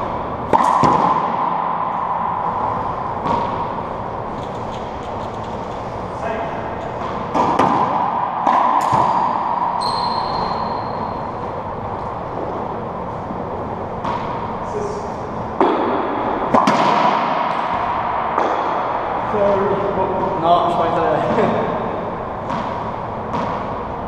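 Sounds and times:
racquetball cracks with echo: 0.1 - 5.8, 6.6 - 11.4, 13.8 - 14.6, 15.5 - 20.4, 21.6 - 23.9.

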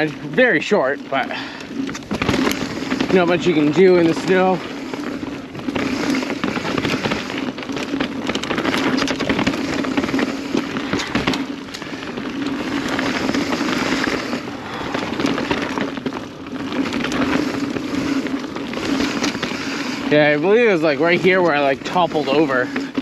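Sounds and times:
bike chain and frame rattling: 0.0 - 23.0
bike tyre noise: 0.0 - 23.0
steady buzz: 8.5 - 23.0.

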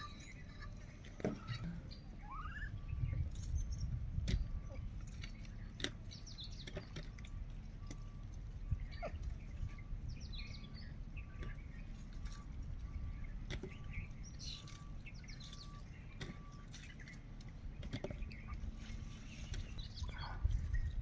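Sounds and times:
low rumble: 0.0 - 21.0
wild birds chirping: 0.0 - 21.0.

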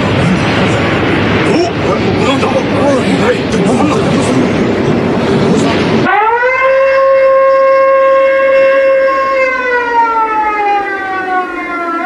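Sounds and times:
wailing alarm siren: 5.8 - 12.0.

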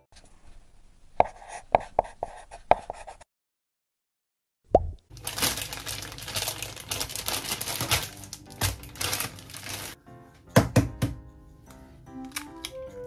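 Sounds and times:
plastic bags crinkling: 5.1 - 10.0.

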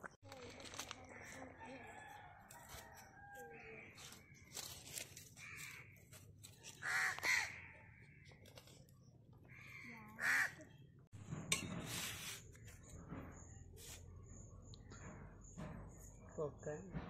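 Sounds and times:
crow cawing: 5.4 - 6.0, 6.7 - 8.3, 9.5 - 10.8.

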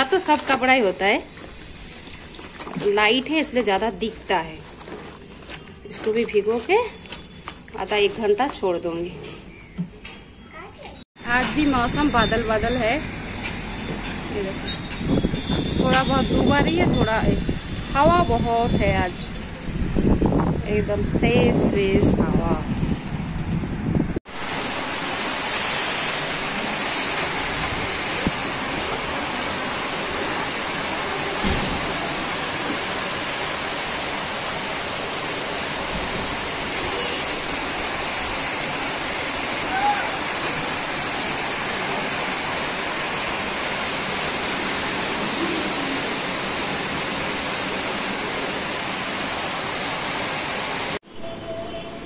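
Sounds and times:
heavy rain pouring: 24.2 - 51.0.

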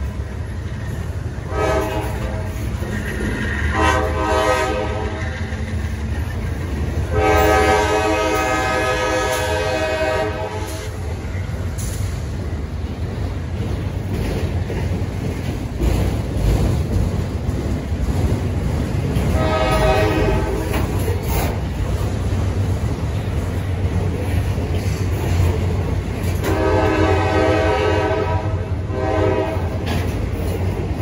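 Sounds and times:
freight cars rumbling and clattering: 0.0 - 31.0
locomotive air horn blasts: 1.4 - 2.7, 3.6 - 5.5, 7.0 - 11.0, 19.3 - 20.8, 26.4 - 29.8.

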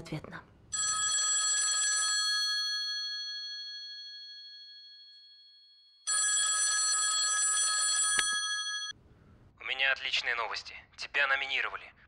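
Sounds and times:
telephone bell ringing: 0.7 - 9.0.

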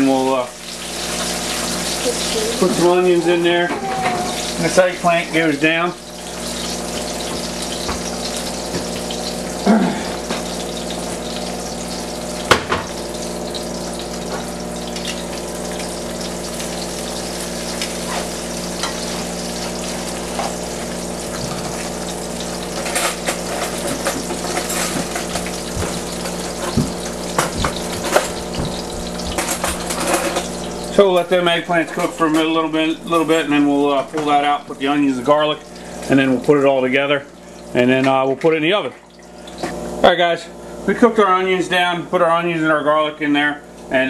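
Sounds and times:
slices sizzling in hot oil: 0.0 - 40.8.

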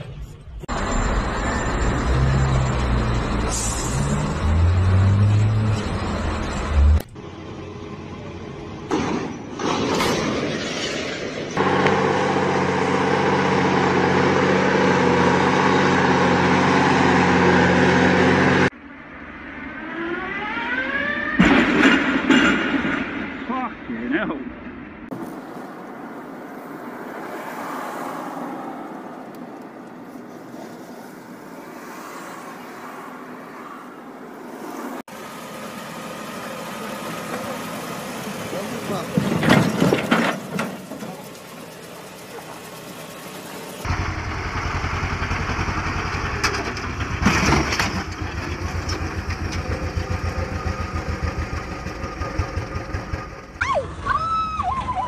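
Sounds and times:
car road and wind noise: 0.0 - 37.6
tractor engine chugging: 35.1 - 53.6.

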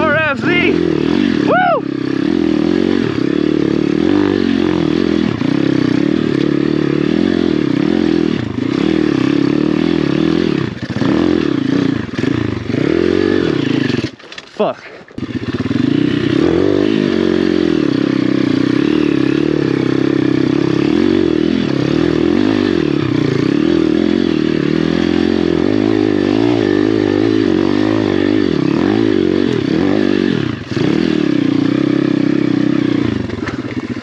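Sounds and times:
motorbike engine under load: 13.6 - 15.6, 33.2 - 34.0.

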